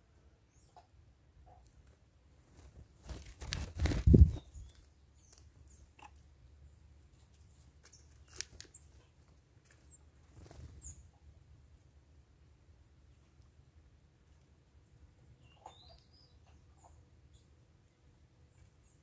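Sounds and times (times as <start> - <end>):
bird chirps: 4.2 - 6.8, 7.8 - 11.1, 15.4 - 17.6.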